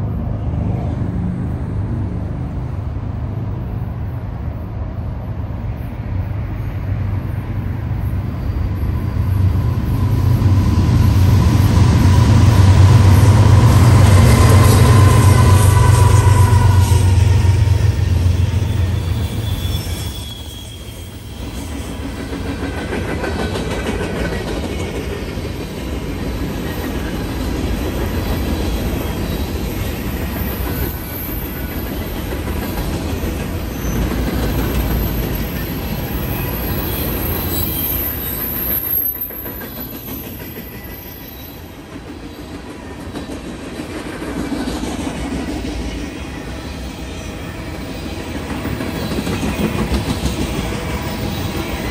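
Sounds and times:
locomotive engine drone: 0.0s - 38.6s
train wheels rumbling on rail: 0.0s - 51.9s
faint high wheel squeal: 13.3s - 22.5s, 28.3s - 43.1s
clickety-clack over rail joints: 21.3s - 51.9s.

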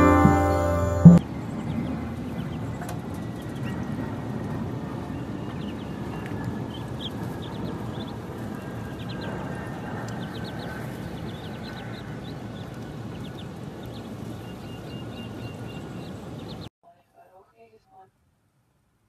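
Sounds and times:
ducklings peeping: 5.5s - 16.7s.

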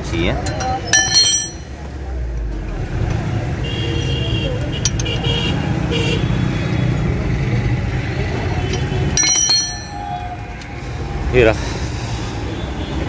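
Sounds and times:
short metallic ring: 0.9s - 1.8s, 9.2s - 10.3s
vehicle engine rumbling: 4.6s - 13.0s.

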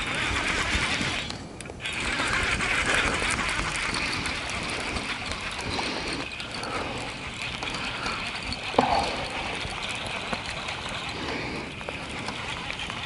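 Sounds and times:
fishing reel whirring: 0.0s - 13.0s.

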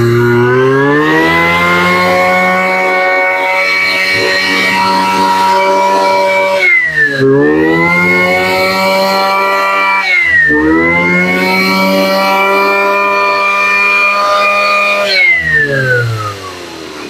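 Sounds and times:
brush cutter engine whining: 0.0s - 17.0s.

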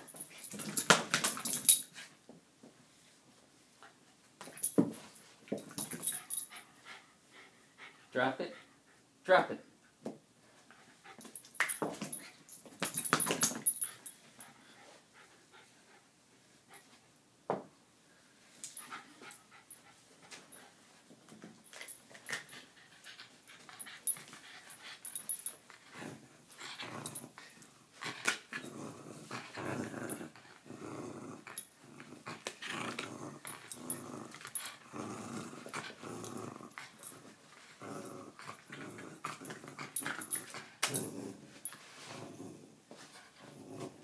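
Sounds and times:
dog play-growling: 21.7s - 44.0s.

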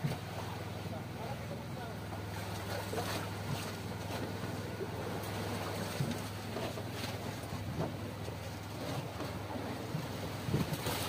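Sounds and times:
boat engine drone: 0.0s - 11.0s
water noise: 0.0s - 11.0s
wind: 0.0s - 11.0s.

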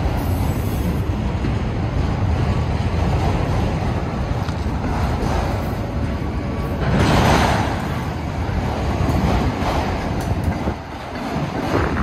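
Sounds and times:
train wheels rumbling on rails: 0.0s - 12.0s.

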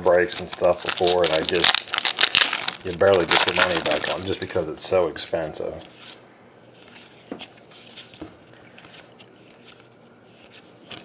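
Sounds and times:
cards rustling and scraping: 5.7s - 11.0s.

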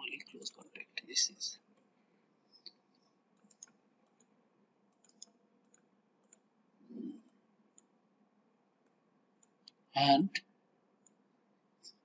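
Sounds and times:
computer mouse clicks: 2.6s - 7.9s, 11.0s - 11.2s.

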